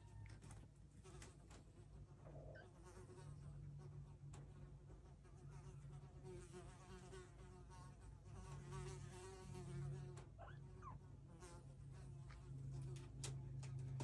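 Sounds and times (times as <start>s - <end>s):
faint buzzing hum: 0.0s - 14.0s
faint rising squeaks: 10.1s - 11.0s.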